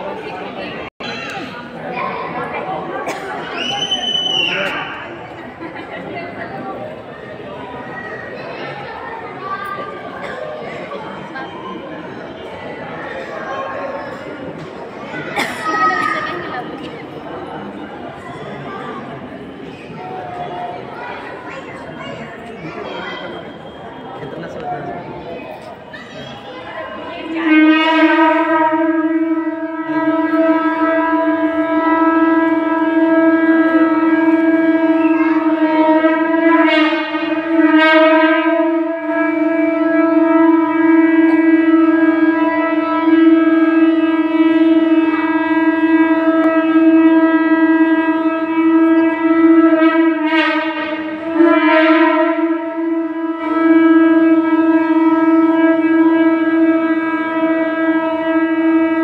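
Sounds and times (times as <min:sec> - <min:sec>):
conch shell blowing: 0:26.9 - 0:59.0.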